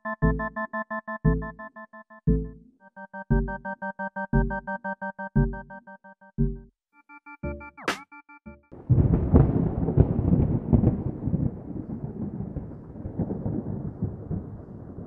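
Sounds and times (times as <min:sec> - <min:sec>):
synth keyboard phrase: 0:00.0 - 0:08.7
rolling rumble of thunder: 0:08.8 - 0:15.0.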